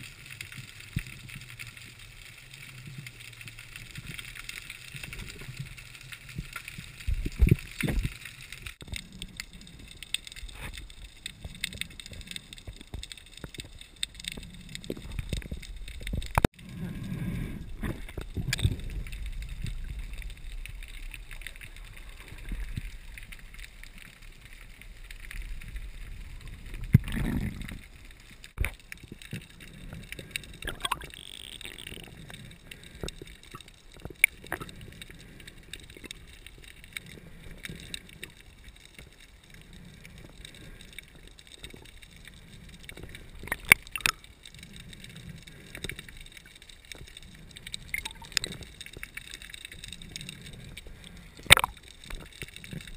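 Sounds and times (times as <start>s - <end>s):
underwater rumble of moving water: 0.0s - 52.9s.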